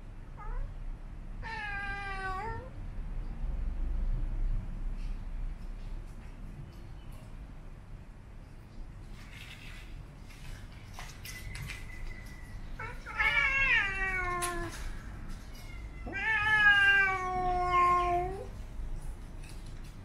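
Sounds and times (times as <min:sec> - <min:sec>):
cat yowling: 0:00.4 - 0:00.7, 0:01.4 - 0:02.7, 0:12.8 - 0:18.5.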